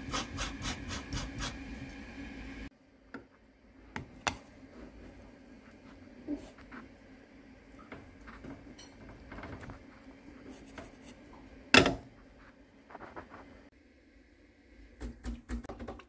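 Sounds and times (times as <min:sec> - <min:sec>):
tamper scraping coffee grounds: 0:12.4 - 0:13.6.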